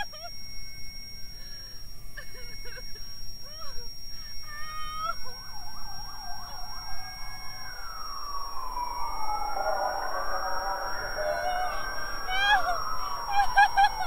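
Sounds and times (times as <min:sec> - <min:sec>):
emergency sirens wailing: 0:04.3 - 0:14.0.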